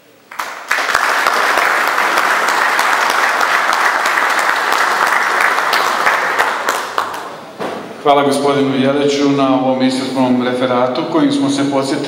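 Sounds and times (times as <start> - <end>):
audience applauding: 0.3 - 7.4.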